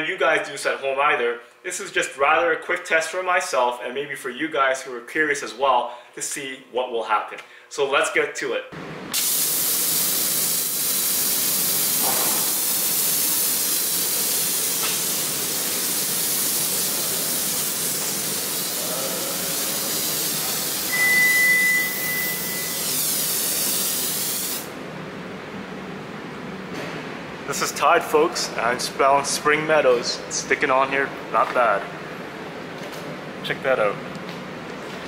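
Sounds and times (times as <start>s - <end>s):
hissing foam spray: 9.2s - 24.7s
thin whistle: 20.9s - 22.9s.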